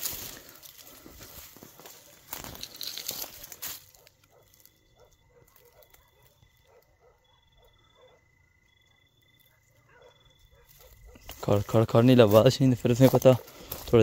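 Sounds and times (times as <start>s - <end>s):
brush rustling: 0.0s - 4.7s, 10.7s - 14.0s.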